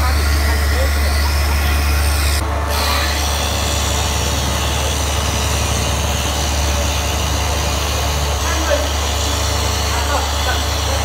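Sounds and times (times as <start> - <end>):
machine motor humming with hiss: 0.0 - 11.0.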